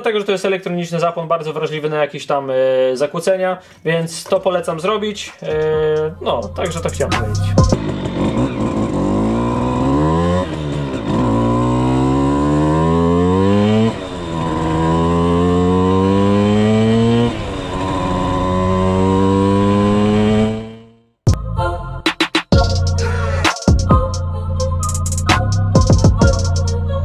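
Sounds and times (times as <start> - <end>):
moped engine accelerating: 5.4 - 21.3, 22.6 - 27.0.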